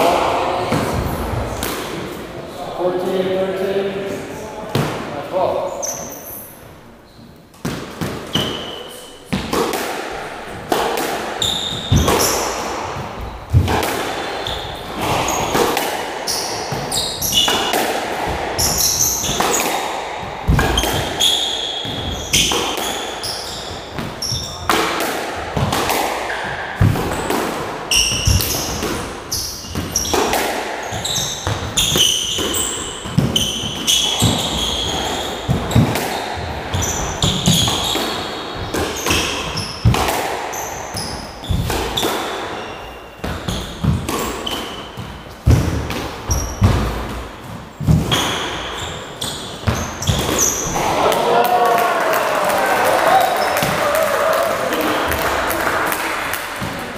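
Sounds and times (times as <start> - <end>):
squash ball striking rackets: 0.0 - 2.2, 4.7 - 5.1, 7.5 - 51.4, 54.6 - 56.9
shoes squeaking on wooden floor: 5.6 - 7.6, 8.2 - 9.4, 11.4 - 24.7, 27.9 - 45.6, 46.3 - 51.1
ball smacking off court walls: 9.3 - 23.0.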